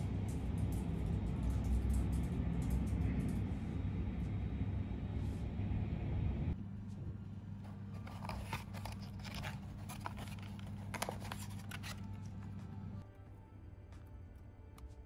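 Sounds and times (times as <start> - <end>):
steady low hum: 0.0 - 15.0
fibre boxes scraping and crackling: 7.8 - 12.6.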